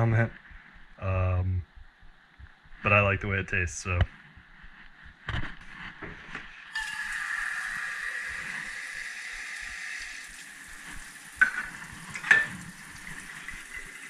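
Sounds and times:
tap water running into cups: 0:06.7 - 0:14.0
metal cups clinking: 0:11.4 - 0:12.7.

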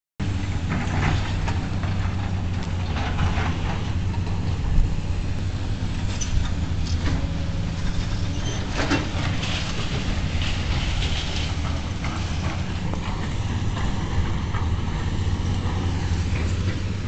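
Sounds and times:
diesel excavator engines droning: 0:00.2 - 0:17.0
concrete rubble clattering and crunching: 0:07.8 - 0:14.8.

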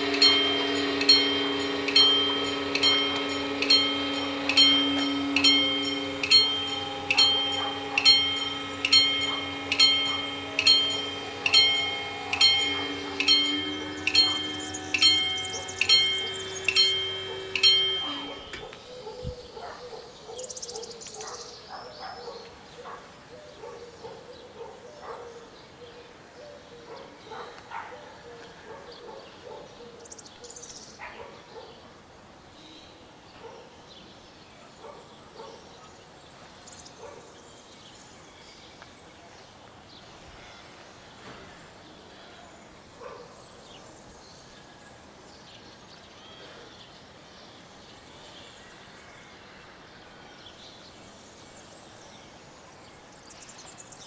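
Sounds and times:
low environmental hum: 0:00.0 - 0:24.6
birds chirping: 0:00.0 - 0:31.9, 0:32.5 - 0:54.0.

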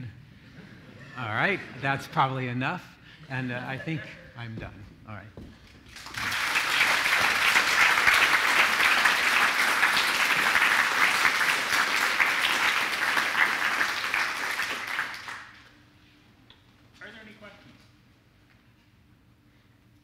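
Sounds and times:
audience applauding: 0:05.9 - 0:15.7.

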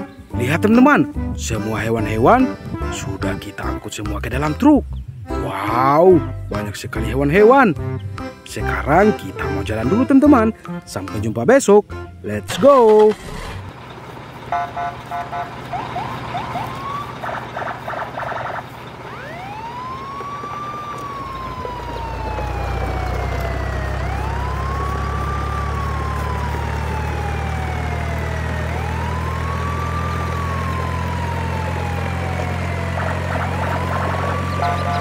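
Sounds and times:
low engine drone: 0:12.0 - 0:35.0
wailing siren: 0:14.5 - 0:35.0.

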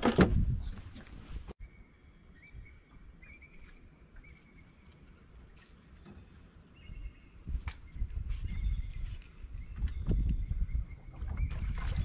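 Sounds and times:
wind buffeting microphone: 0:00.0 - 0:01.6, 0:06.8 - 0:12.0.

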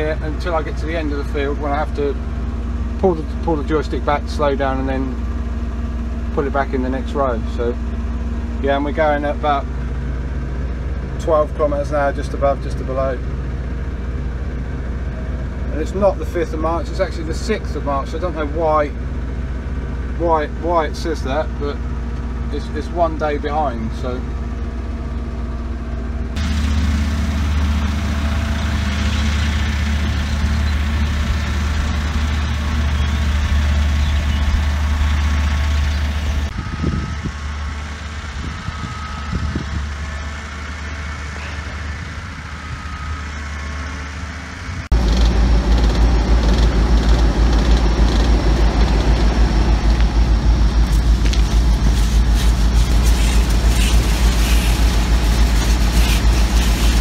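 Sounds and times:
distant machine sound: 0:00.0 - 0:57.0
pulsing machine drone: 0:00.0 - 0:57.0
sprayer engine running: 0:26.3 - 0:57.0.

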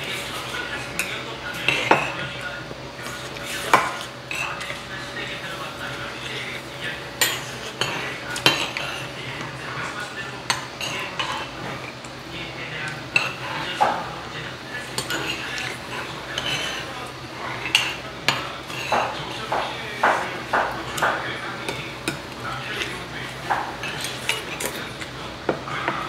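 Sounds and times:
metal spoons clinking on bowls: 0:00.4 - 0:02.4, 0:03.6 - 0:04.8, 0:07.2 - 0:09.6, 0:12.8 - 0:14.1, 0:14.8 - 0:25.1.

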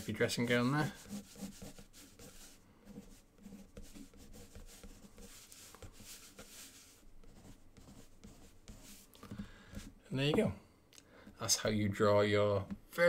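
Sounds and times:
pencil scratching on paper: 0:00.0 - 0:09.1.

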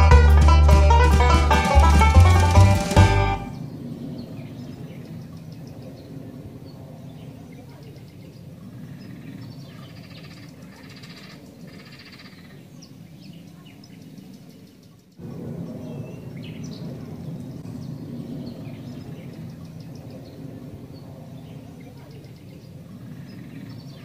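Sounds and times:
bird chirps and calls: 0:03.5 - 0:15.2, 0:15.8 - 0:24.0
steady low rumble: 0:15.2 - 0:21.8.

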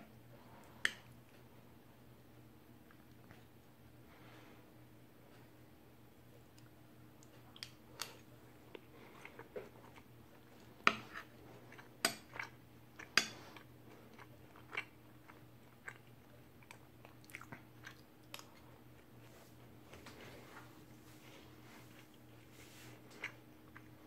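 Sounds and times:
person chewing: 0:06.5 - 0:19.2, 0:21.8 - 0:24.0.

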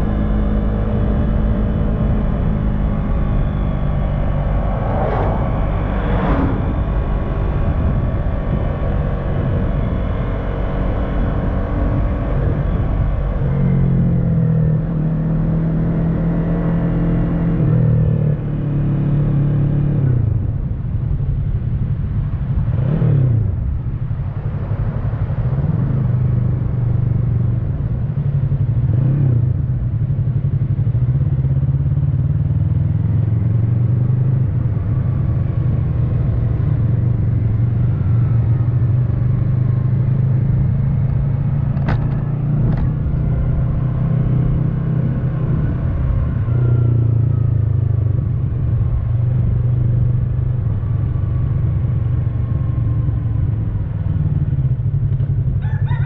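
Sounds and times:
motorcycle engine running: 0:25.9 - 0:55.7.

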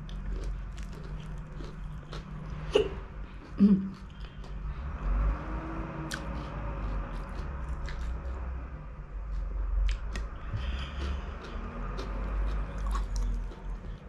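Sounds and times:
person chewing food: 0:00.0 - 0:14.0
steady low rumble: 0:00.0 - 0:14.0.

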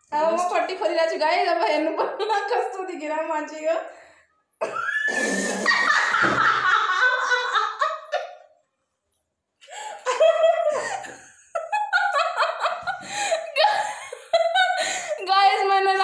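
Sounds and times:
young women laughing loudly: 0:04.6 - 0:08.5, 0:09.8 - 0:15.3.

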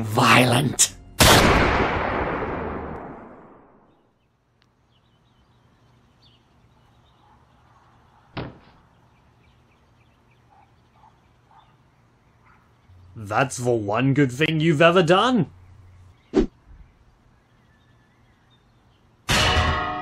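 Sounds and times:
sharp pistol shot: 0:01.2 - 0:03.8
loud echoing gunshot: 0:01.2 - 0:03.9
faint birdsong: 0:03.6 - 0:19.3.

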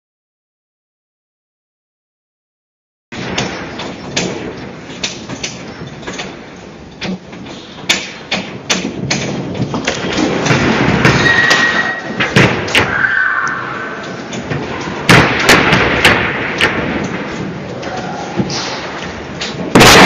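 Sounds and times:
earthquake rumble: 0:08.9 - 0:20.0
brief high squeal: 0:11.2 - 0:12.1, 0:12.9 - 0:14.0.

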